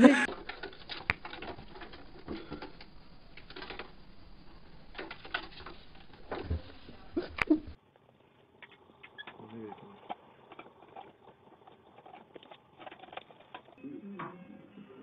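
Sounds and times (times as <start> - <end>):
kitten claws scratching wood: 10.0 - 13.8.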